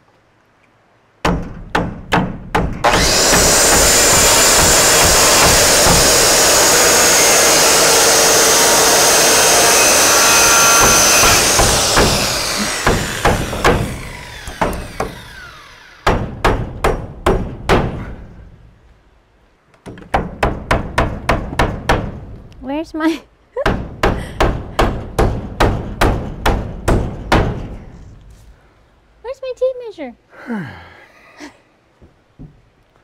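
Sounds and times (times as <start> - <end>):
hammer driving nail: 1.3 - 18.0
circular saw cutting wood: 2.8 - 16.2.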